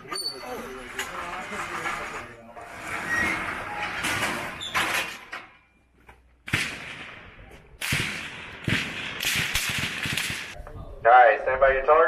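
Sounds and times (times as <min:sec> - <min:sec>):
metal sliding and rattling: 0:00.0 - 0:05.8.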